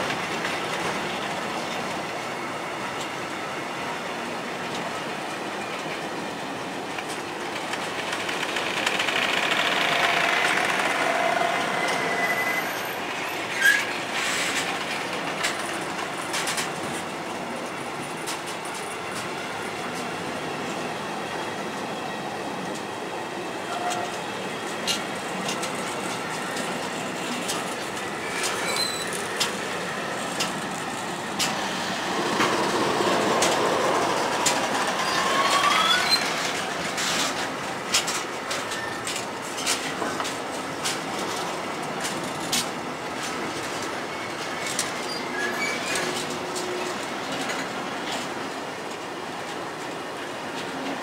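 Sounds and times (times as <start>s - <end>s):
freight train wheels clicking: 6.8s - 20.8s, 23.7s - 51.0s
wheel squeal: 11.0s - 14.4s, 28.2s - 29.2s, 34.9s - 36.5s, 44.1s - 46.1s.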